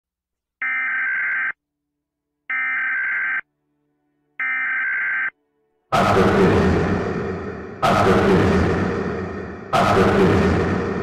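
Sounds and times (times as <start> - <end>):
electronic alarm beeps: 0.6 - 1.6, 2.5 - 3.4, 4.4 - 5.4
loud burst of noise: 6.0 - 11.0.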